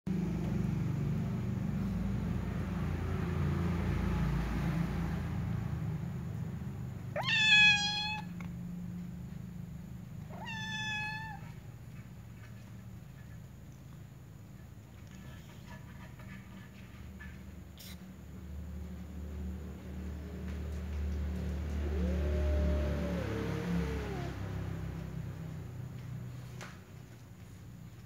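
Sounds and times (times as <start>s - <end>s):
cat meowing: 7.1s - 8.4s, 10.2s - 11.6s, 21.8s - 24.4s.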